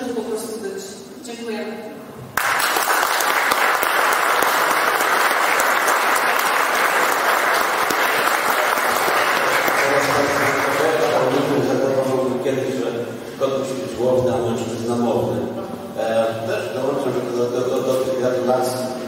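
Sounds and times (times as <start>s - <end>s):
audience applauding: 2.3s - 11.9s.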